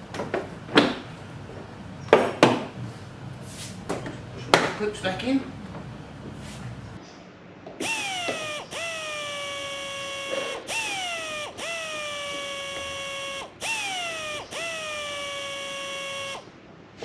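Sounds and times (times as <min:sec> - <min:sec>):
small electric motor whining: 0:07.8 - 0:16.5.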